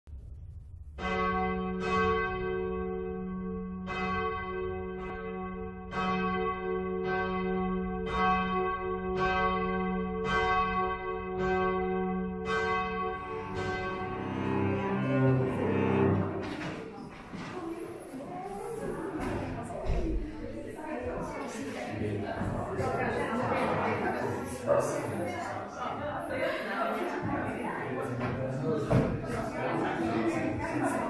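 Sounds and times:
church bell ringing: 0:01.0 - 0:16.6.

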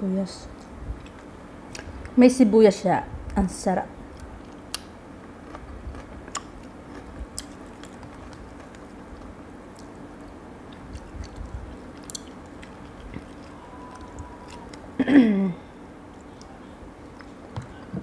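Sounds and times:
faint steady hum: 0:00.0 - 0:18.0
person chewing: 0:04.1 - 0:15.0, 0:16.1 - 0:17.9.

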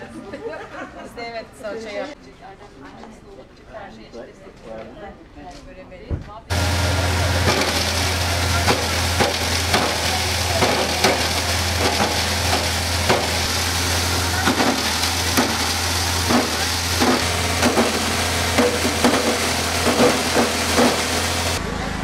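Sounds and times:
electric mill humming: 0:06.5 - 0:22.0.

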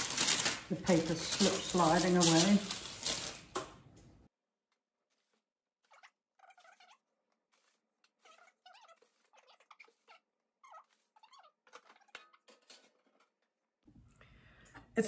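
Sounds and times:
metal spatula scraping: 0:00.9 - 0:03.4, 0:05.0 - 0:13.6.

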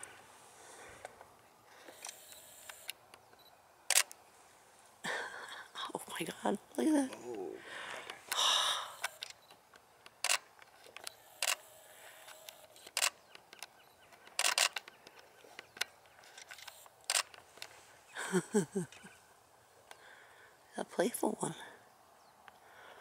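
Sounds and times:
camera shutter clicking: 0:01.8 - 0:04.2, 0:10.1 - 0:13.7, 0:14.3 - 0:15.0, 0:16.3 - 0:17.4.

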